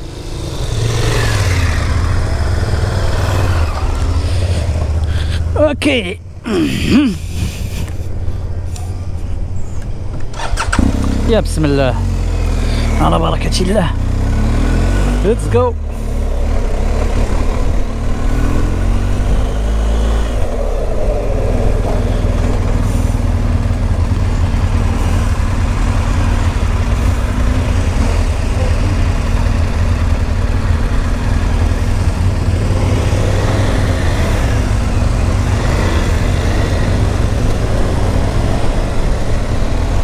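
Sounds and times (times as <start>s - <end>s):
motorcycle engine pulling away: 10.3s - 11.3s, 14.0s - 40.0s.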